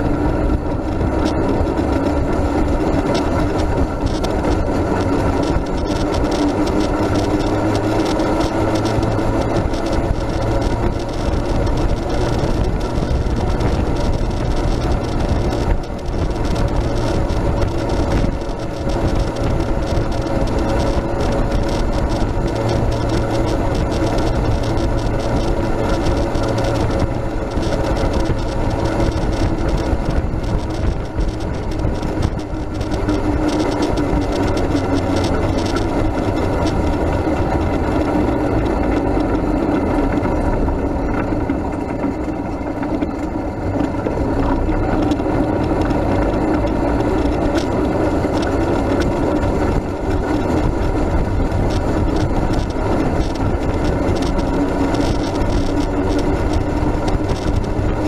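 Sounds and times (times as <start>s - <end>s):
rattles and knocks of vehicle body: 0.0s - 58.0s
rolling rumble of towed vehicle: 0.0s - 58.0s.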